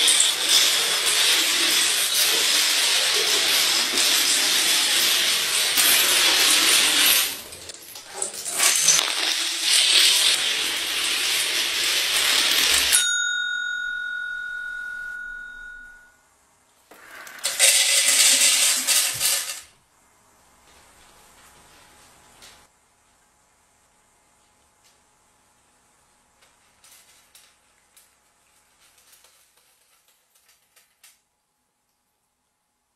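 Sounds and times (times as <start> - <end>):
dominoes toppling clatter: 0.0 - 13.0, 17.0 - 19.7, 26.8 - 31.2
bell ding: 12.9 - 16.2.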